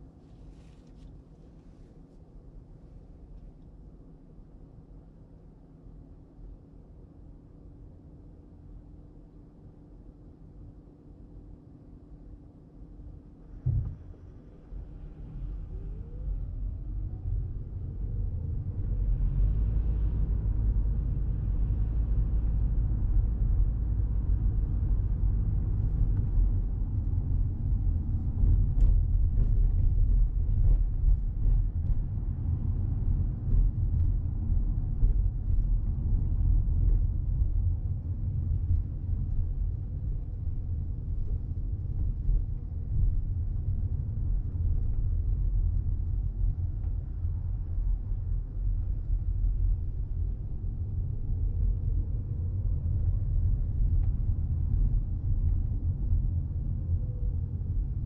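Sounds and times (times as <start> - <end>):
car road and tyre rumble: 13.4 - 58.0.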